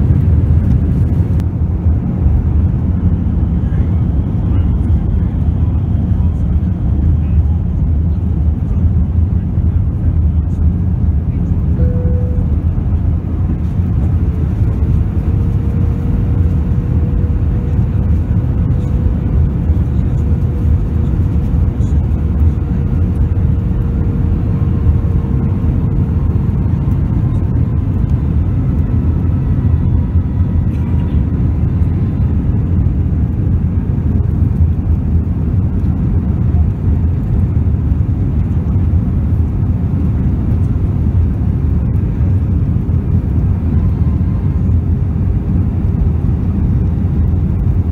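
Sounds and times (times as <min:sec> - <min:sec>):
jet engines and airflow rumble: 0:00.0 - 0:47.9
faint steady hum: 0:11.3 - 0:32.6.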